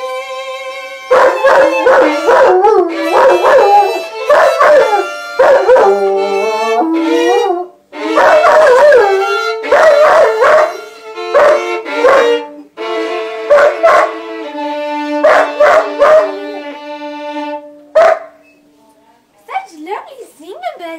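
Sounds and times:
violin playing slow notes: 0:00.0 - 0:17.9
dog howling: 0:01.0 - 0:12.5, 0:13.4 - 0:14.3, 0:15.1 - 0:16.8.

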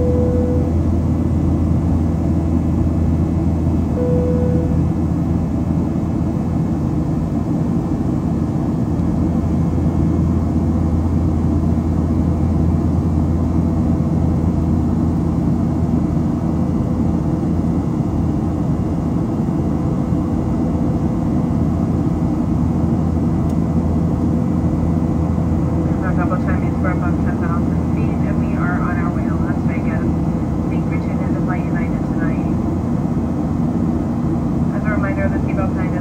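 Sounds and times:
jet engines humming in flight: 0:00.0 - 0:36.0.

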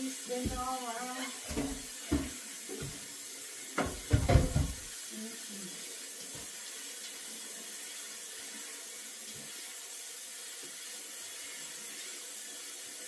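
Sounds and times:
faucet running into sink: 0:00.0 - 0:13.0
dishes knocking in basin: 0:00.4 - 0:03.0, 0:03.8 - 0:04.9.

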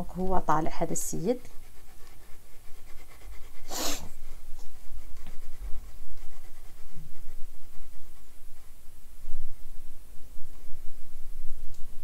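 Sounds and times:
stylus rubbing and tapping on tablet: 0:00.0 - 0:08.9.

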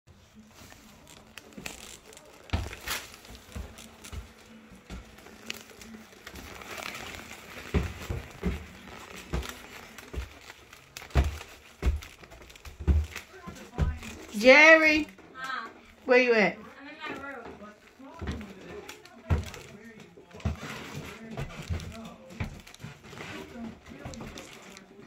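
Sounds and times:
footsteps on stairs: 0:02.5 - 0:15.2.

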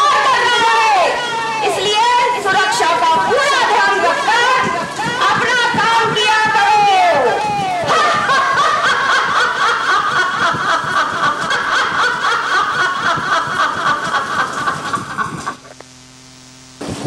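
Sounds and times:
woman cackling laugh: 0:07.5 - 0:15.6.

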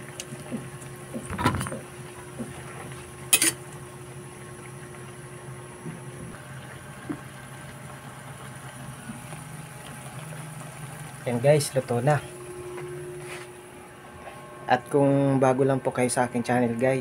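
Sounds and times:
broth simmering in a wok: 0:00.0 - 0:11.3.

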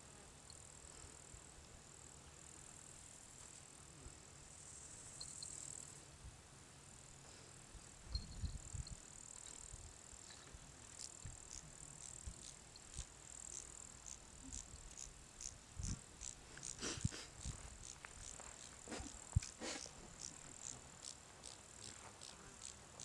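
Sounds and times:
high-pitched insect chirring: 0:00.4 - 0:00.8, 0:04.6 - 0:06.0, 0:08.1 - 0:23.0
wind thumps on microphone: 0:15.7 - 0:16.1.

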